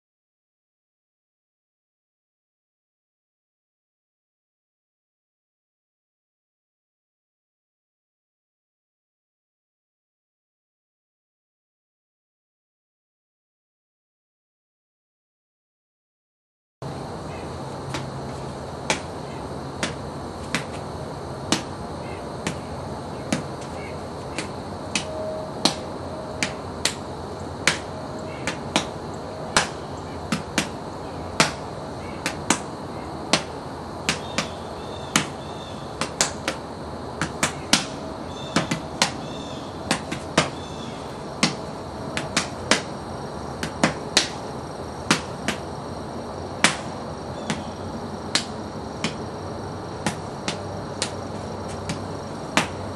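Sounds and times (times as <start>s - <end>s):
hand strikes on bags: 21.5s - 21.7s, 22.4s - 22.7s, 23.3s - 27.0s, 28.5s - 28.9s, 31.4s - 31.6s, 39.9s - 40.6s, 42.2s - 42.9s.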